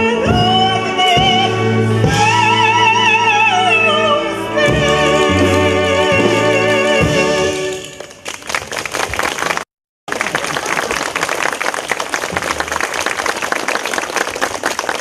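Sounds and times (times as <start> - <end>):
audience applauding: 7.9 - 15.0.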